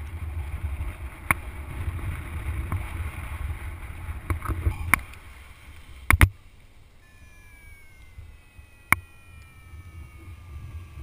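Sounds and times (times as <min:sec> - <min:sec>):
wind rushing over microphone: 0:00.0 - 0:05.5, 0:08.0 - 0:11.0
falling variometer tone: 0:07.0 - 0:11.0
sharp clicks: 0:07.2 - 0:09.8.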